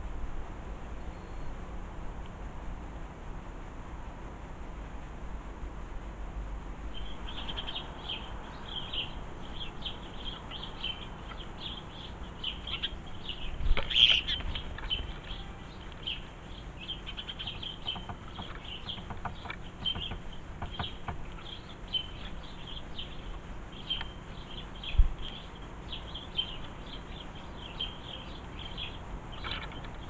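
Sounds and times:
sparrows chirping: 1.0s - 1.6s, 6.9s - 30.0s.

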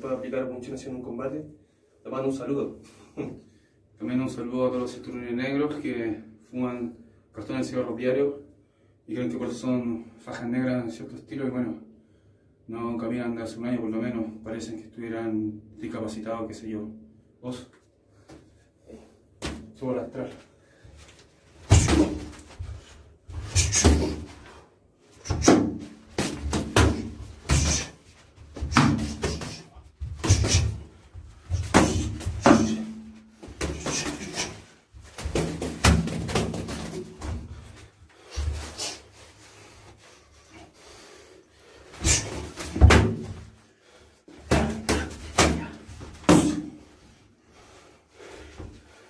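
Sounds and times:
boxing gloves punches: 21.7s - 22.5s, 23.3s - 24.3s, 25.2s - 30.9s, 31.5s - 37.4s.

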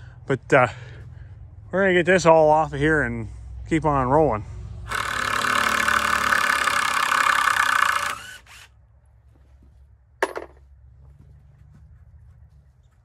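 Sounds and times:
power drill running: 4.9s - 8.7s.

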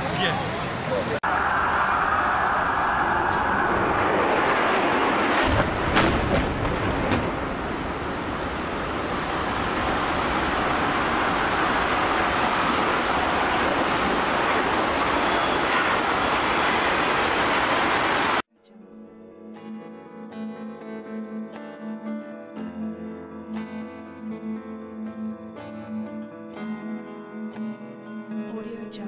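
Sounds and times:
steady noisy roar: 0.0s - 18.4s
bangs: 1.9s - 8.5s
explosion crack: 3.0s - 16.0s.

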